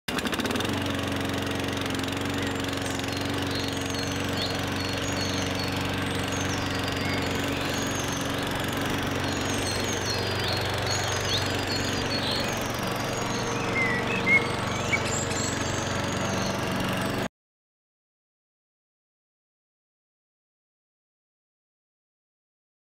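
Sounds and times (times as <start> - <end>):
low mechanical drone: 0.2 - 17.3
bird chirps: 2.3 - 16.6.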